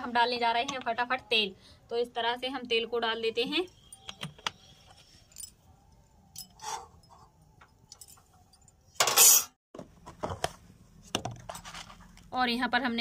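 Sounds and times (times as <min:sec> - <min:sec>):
metal utensils clinking: 0:09.0 - 0:09.6.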